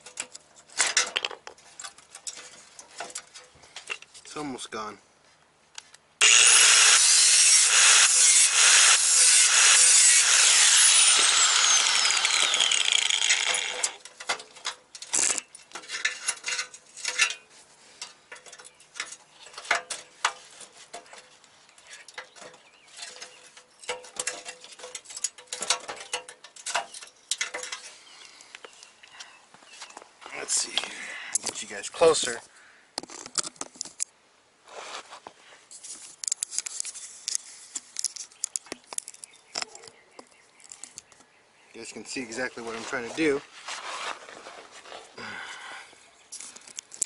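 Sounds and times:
angle grinder cutting steel: 6.2s - 14.0s
metal parts and tools clicking: 9.8s - 17.4s, 18.0s - 28.0s.

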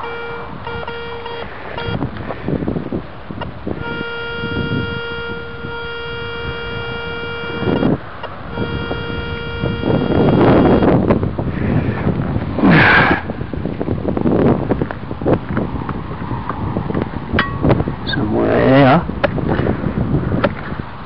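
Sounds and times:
metal detector beeping: 0.0s - 2.0s, 3.8s - 10.9s.

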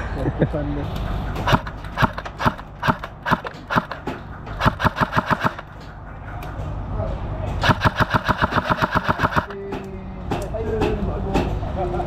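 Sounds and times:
airsoft rifle shots: 1.4s - 5.9s, 7.6s - 9.6s.

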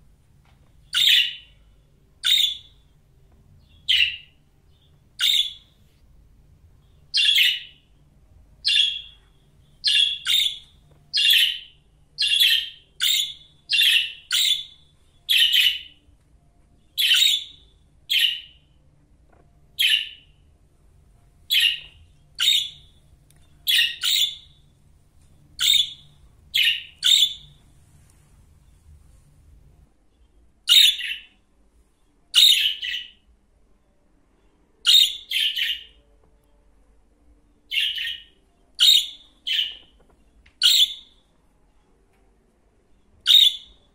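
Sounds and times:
budgerigar chirping: 0.9s - 1.5s, 2.2s - 2.8s, 3.7s - 4.4s, 5.2s - 5.8s, 7.1s - 7.8s, 8.6s - 9.2s, 9.8s - 16.0s, 17.0s - 18.6s, 19.8s - 20.4s, 21.5s - 23.0s, 23.6s - 24.6s, 25.6s - 27.6s, 30.7s - 31.3s, 32.4s - 33.2s, 34.9s - 36.0s, 37.7s - 39.9s, 40.6s - 41.2s, 43.3s - 43.8s.

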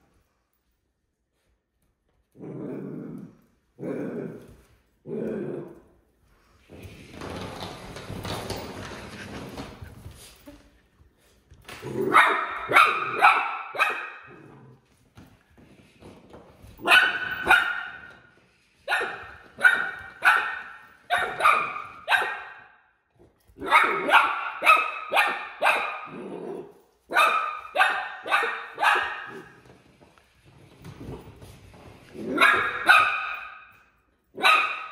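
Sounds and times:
puppy barking: 12.1s - 14.4s, 16.8s - 18.1s, 18.9s - 22.8s, 23.6s - 26.2s, 27.1s - 29.6s, 32.3s - 33.7s, 34.4s - 34.9s.

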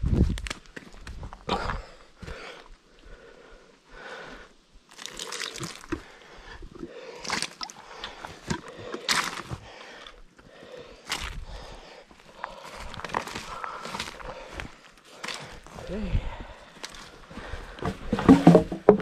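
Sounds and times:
sticks cracking: 8.4s - 9.6s.

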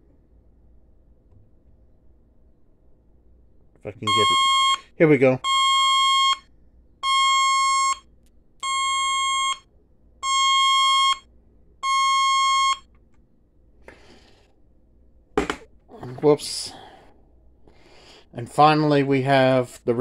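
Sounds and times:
shrill alert siren beeping: 4.0s - 12.9s.

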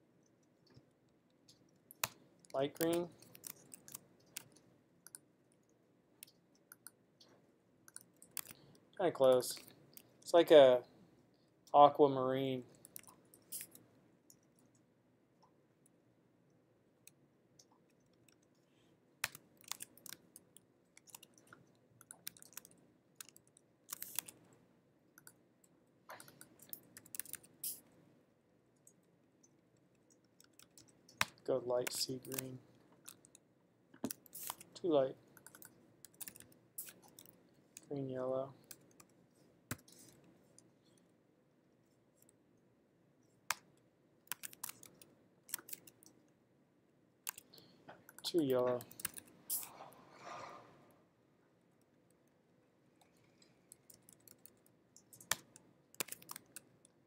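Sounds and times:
faint keyboard typing: 0.1s - 10.4s, 12.6s - 28.1s, 28.7s - 41.1s, 43.2s - 46.4s, 47.2s - 49.9s, 51.7s - 57.0s.

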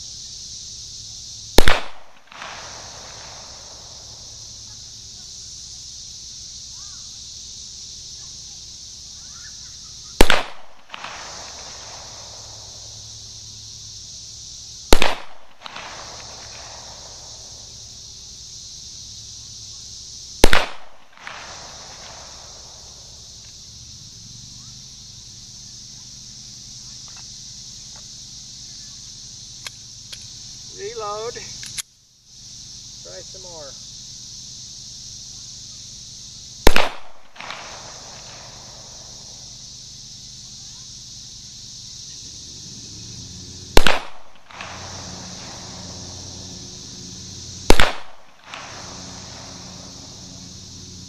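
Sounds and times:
pistol shots with echo: 1.6s - 2.0s, 36.7s - 37.6s, 47.7s - 48.8s.

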